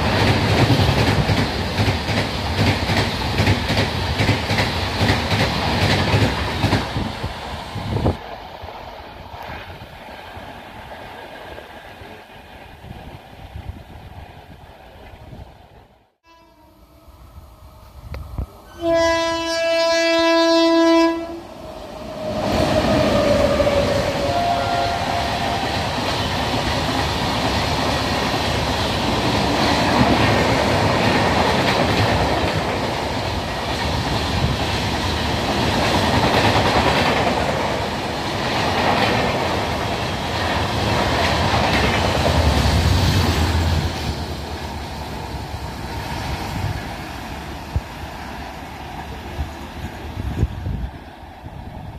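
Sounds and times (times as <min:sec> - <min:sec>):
train wheels rushing on rail: 0:00.0 - 0:16.0, 0:16.9 - 0:51.9
train horn blast: 0:16.2 - 0:17.0, 0:18.7 - 0:21.6, 0:22.3 - 0:25.7.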